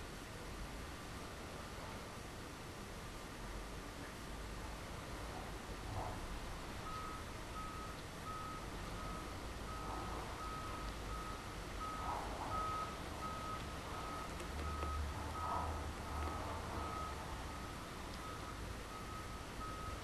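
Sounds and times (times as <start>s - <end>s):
electronic beeps: 6.9s - 15.5s.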